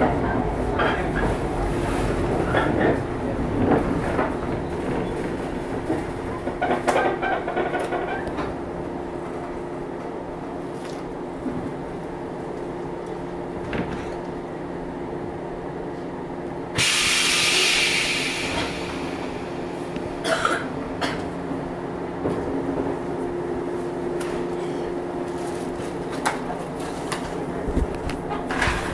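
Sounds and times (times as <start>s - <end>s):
train equipment hum: 0.0s - 28.9s
compressed air hiss: 16.8s - 19.9s.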